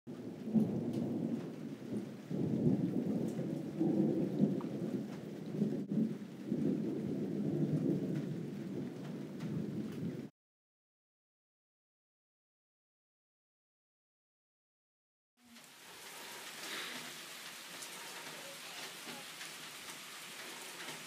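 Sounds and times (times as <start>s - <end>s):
heavy rain: 0.1s - 10.3s, 15.4s - 21.0s.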